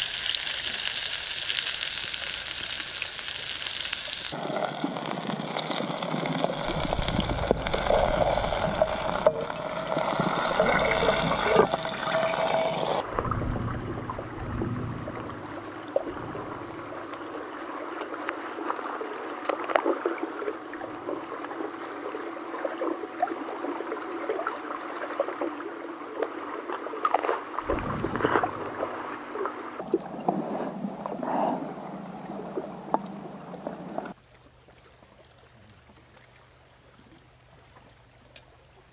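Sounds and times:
fish sizzling in a pan: 0.0 - 13.0.

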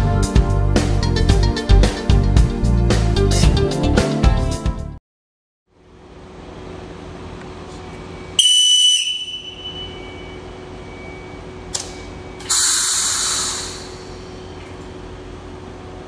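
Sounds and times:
electric train humming: 5.8 - 16.0
shrill whistle: 8.2 - 13.6
compressed air hiss: 12.4 - 14.3.

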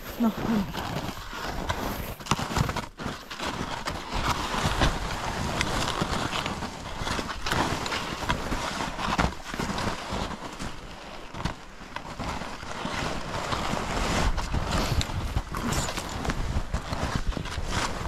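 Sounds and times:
skis crunching through snow: 0.0 - 18.0
scrapes and knocks: 12.4 - 18.0.

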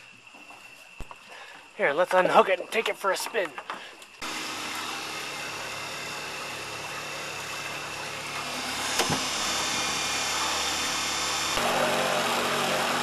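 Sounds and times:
electric motor humming and whining: 4.2 - 13.0.

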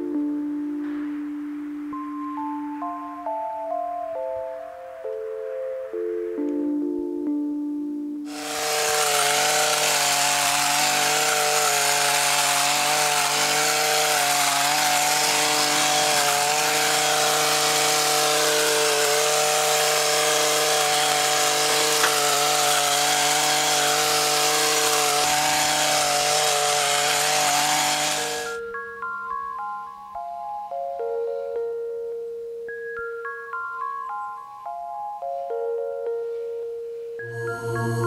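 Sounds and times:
small petrol engine running: 8.3 - 28.6.

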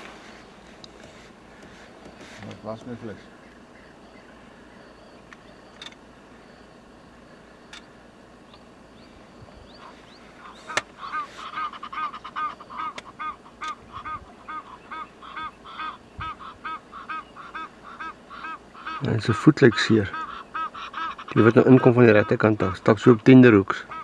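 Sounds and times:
bird calling: 0.0 - 24.0.

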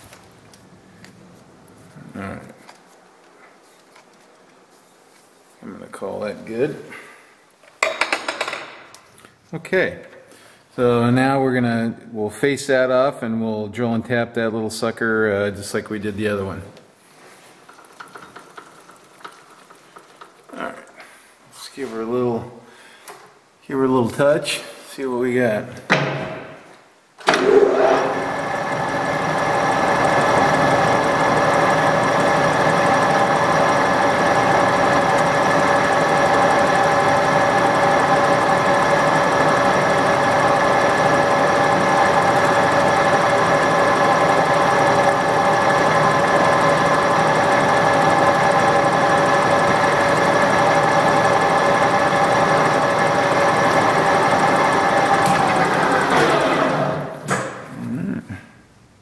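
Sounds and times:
metal lathe whining: 27.3 - 57.3.

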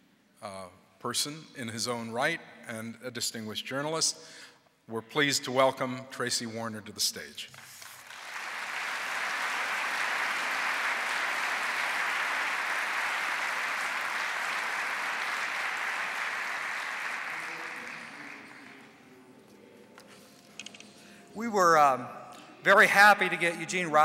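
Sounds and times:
audience applauding: 7.7 - 19.1.

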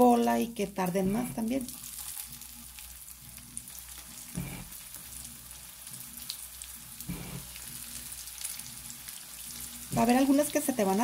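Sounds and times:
potato wedges frying in oil: 0.0 - 11.0.

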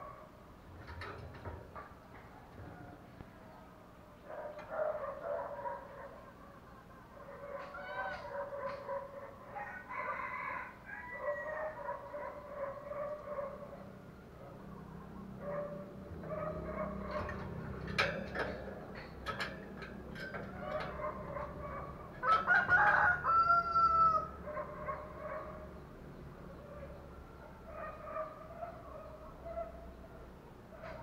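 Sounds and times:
rooster crowing: 7.4 - 8.6, 9.5 - 12.0, 22.2 - 24.4.

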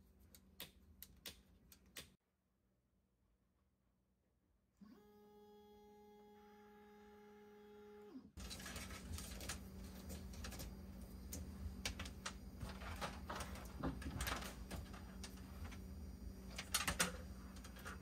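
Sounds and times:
wire rustling and clicking: 8.4 - 15.9.

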